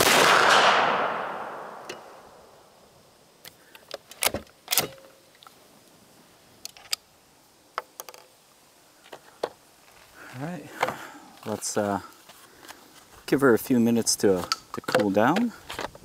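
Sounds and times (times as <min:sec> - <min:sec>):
shotgun shot: 0:00.0 - 0:02.3.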